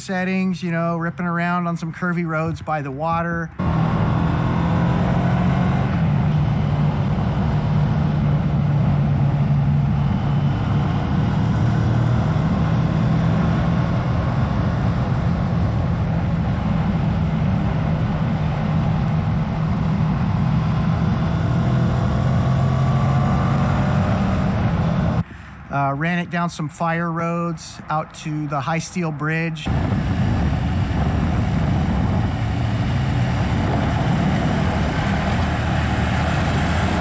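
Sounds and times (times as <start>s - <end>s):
road noise: 0.0s - 37.0s
motorcycle engine cruising: 3.6s - 25.2s, 29.6s - 37.0s
wind noise: 29.6s - 37.0s.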